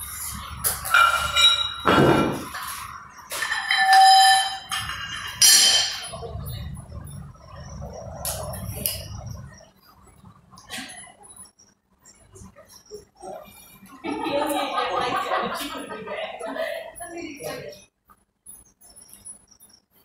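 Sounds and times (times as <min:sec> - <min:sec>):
metal weight plates clanking: 0:00.8 - 0:06.2.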